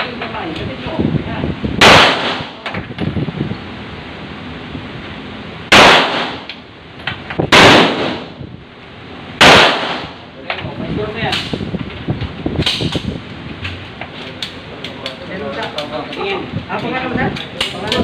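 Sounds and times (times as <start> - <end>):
loud handgun shots with echo: 1.8 - 2.6, 5.7 - 6.5, 7.5 - 8.4, 9.4 - 10.2.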